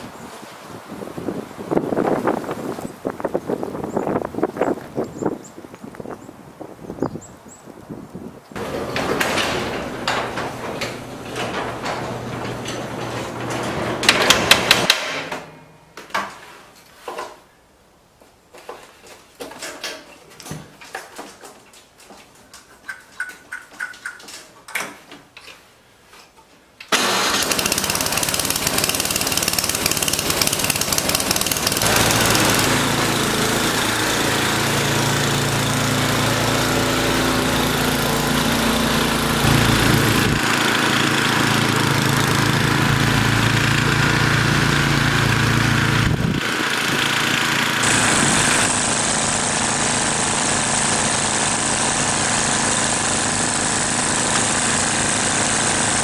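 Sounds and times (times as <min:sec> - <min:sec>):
snowblower engine running: 0:08.6 - 0:14.9, 0:26.9 - 0:56.0
small clicks and knocks: 0:19.4 - 0:25.6.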